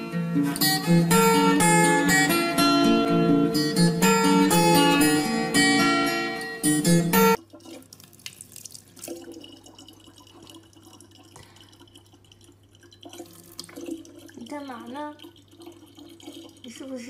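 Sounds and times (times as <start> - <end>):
strummed acoustic guitar: 0.0 - 7.4.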